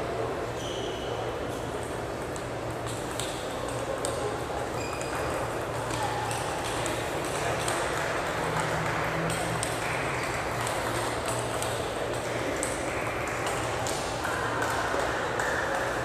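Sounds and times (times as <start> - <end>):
murmur of voices: 0.0 - 16.0
steady low hum: 5.4 - 14.3.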